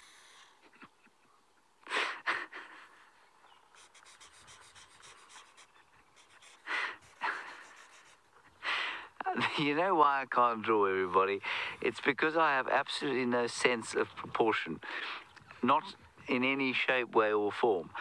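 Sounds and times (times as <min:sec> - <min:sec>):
man breathing close to microphone: 0:00.0 - 0:00.7, 0:06.2 - 0:09.2, 0:11.4 - 0:11.8, 0:14.8 - 0:15.4
faint ticking and scratching: 0:03.6 - 0:08.5.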